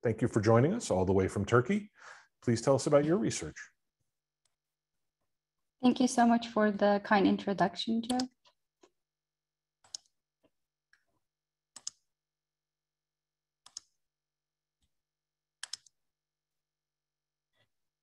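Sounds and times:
computer mouse clicks: 0:08.1 - 0:08.6, 0:09.8 - 0:10.1, 0:11.8 - 0:12.0, 0:13.6 - 0:14.0, 0:15.6 - 0:16.0.

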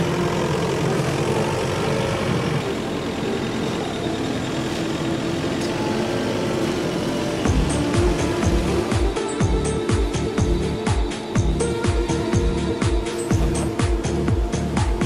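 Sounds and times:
forklift engine droning: 0:00.0 - 0:15.0
thudding music beat: 0:07.5 - 0:15.0.

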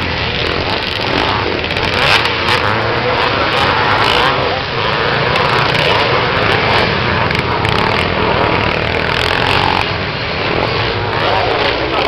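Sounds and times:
dirt bike engines racing: 0:00.0 - 0:12.0.

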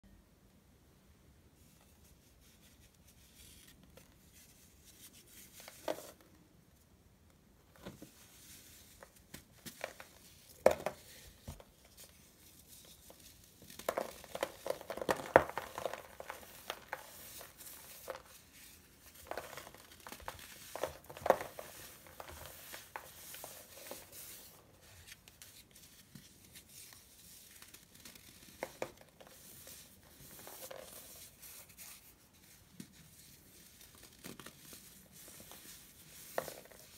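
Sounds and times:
powdery crumbling: 0:13.7 - 0:24.7.

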